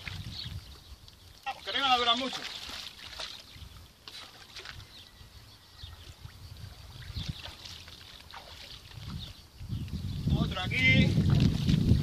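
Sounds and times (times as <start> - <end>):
splashing of shallow water: 0.0 - 5.0, 5.9 - 9.4, 11.0 - 12.0.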